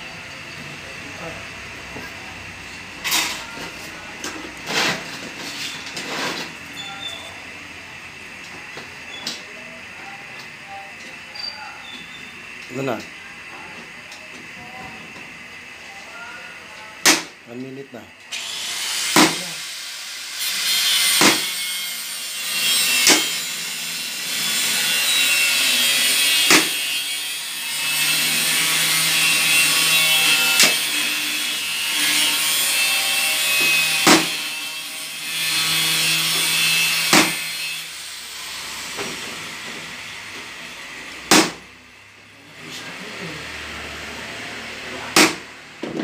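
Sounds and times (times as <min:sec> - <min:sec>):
metal scraping against metal: 0:04.4 - 0:07.3.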